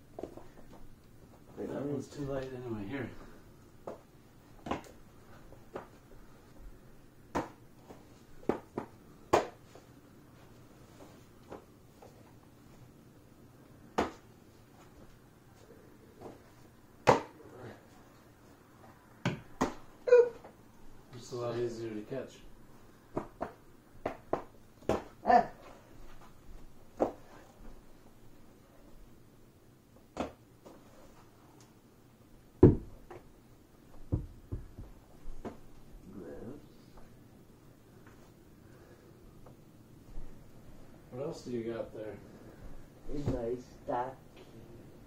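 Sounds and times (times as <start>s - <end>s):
ball smacking into leather glove: 19.2s - 19.9s, 32.6s - 33.2s.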